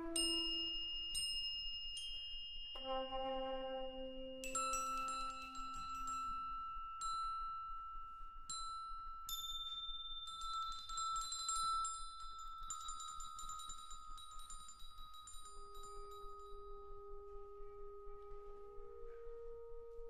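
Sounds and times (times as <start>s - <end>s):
flute holding high tone: 0.0s - 1.7s, 2.7s - 9.3s, 15.3s - 20.0s
rapid tinkling of metal bars: 0.0s - 16.9s.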